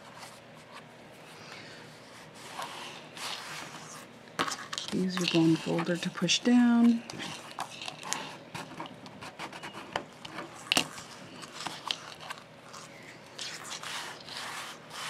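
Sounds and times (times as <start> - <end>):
bone folder scraping paper: 2.2 - 6.2, 7.0 - 15.0
hands sliding over paper: 10.6 - 15.0.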